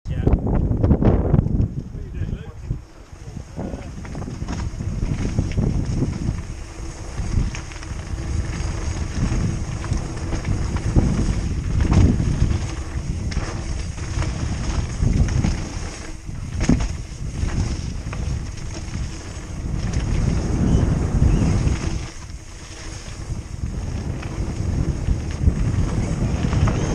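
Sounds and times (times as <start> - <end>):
wind rumbling on microphone: 0.0 - 26.9
tyres on gravel: 2.7 - 26.9
bike knocking over bumps: 3.6 - 22.6.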